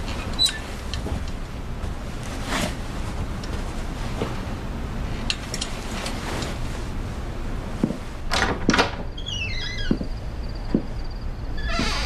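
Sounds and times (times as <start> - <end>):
creaking hinge squeal: 0.4 - 0.6, 9.1 - 10.2, 11.1 - 12.0
heavy footstep: 1.0 - 4.8, 7.6 - 8.3, 9.8 - 12.0
wooden door thump and scrapes: 9.6 - 10.9.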